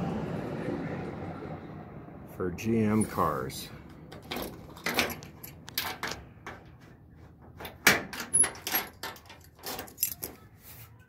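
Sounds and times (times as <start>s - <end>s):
key turning in lock: 4.1s - 6.6s, 7.6s - 10.5s
keys jangling: 4.1s - 6.6s, 7.6s - 10.5s.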